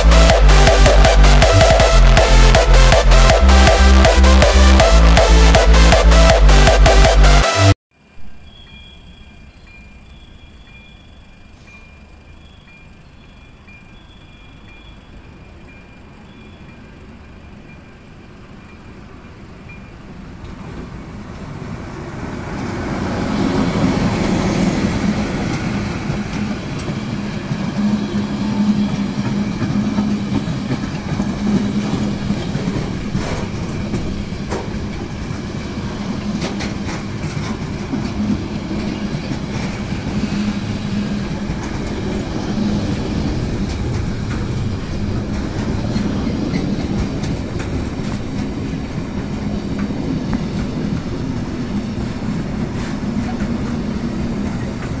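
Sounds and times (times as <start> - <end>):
diesel locomotives passing: 0.0 - 55.0
train wheels clicking over rail joints: 22.6 - 55.0.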